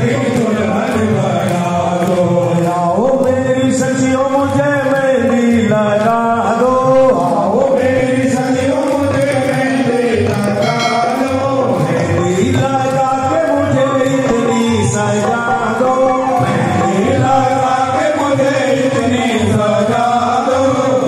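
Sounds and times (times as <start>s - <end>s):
devotional chanting over loudspeakers: 0.0s - 21.0s
instrumental accompaniment: 0.0s - 21.0s
light percussion strokes: 10.5s - 12.0s.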